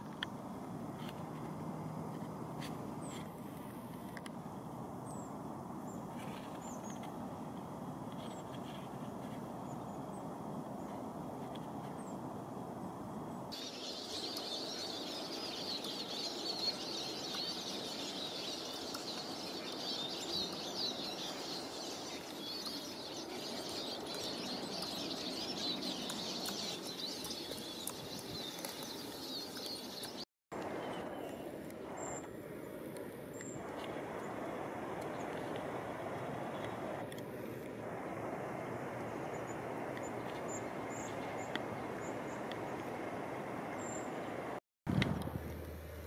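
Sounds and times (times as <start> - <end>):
small birds chirping: 13.3 - 32.4
low steady rumble: 44.9 - 46.0.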